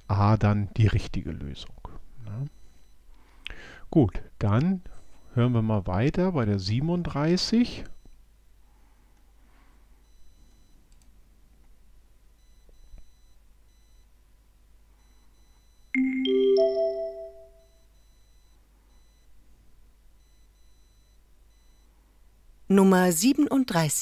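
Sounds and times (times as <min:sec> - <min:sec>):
faint click: 0:10.9 - 0:11.1
three-note rising chime: 0:16.0 - 0:17.7.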